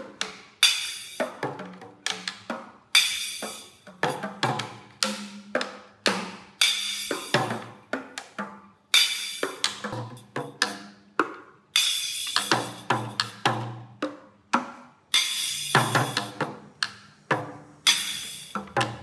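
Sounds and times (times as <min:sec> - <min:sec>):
toy drum hits: 0:00.0 - 0:08.4, 0:09.0 - 0:19.0
tinny cymbal crashes: 0:11.8 - 0:13.3, 0:15.2 - 0:16.4, 0:17.8 - 0:18.8.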